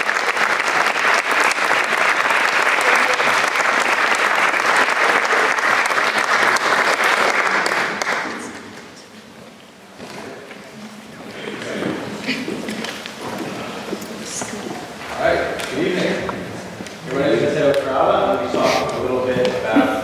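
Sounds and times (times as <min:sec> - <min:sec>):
audience clapping: 0:00.0 - 0:09.0.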